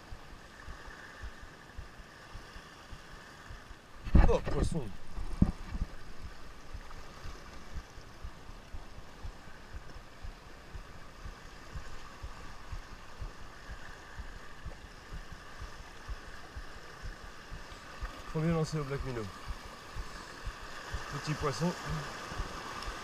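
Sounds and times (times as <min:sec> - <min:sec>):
sea water washing on rocks: 0:00.4 - 0:23.0
low knocks: 0:04.0 - 0:06.9.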